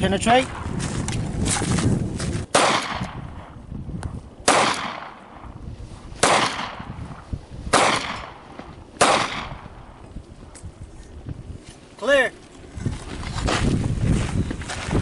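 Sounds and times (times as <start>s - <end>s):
pistol shots echoing: 2.5s - 3.5s, 4.4s - 5.4s, 6.2s - 6.9s, 7.7s - 9.7s.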